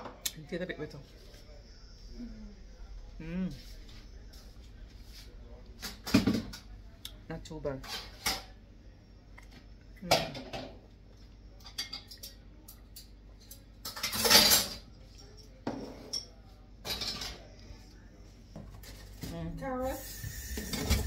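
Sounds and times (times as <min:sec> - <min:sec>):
dishes and cutlery clattering: 0:11.6 - 0:17.5.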